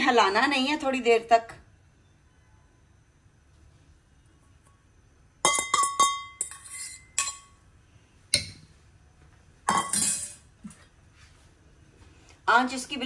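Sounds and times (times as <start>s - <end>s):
dishes clinking: 5.4s - 7.6s, 9.7s - 10.5s
dishes clattering: 9.7s - 10.4s.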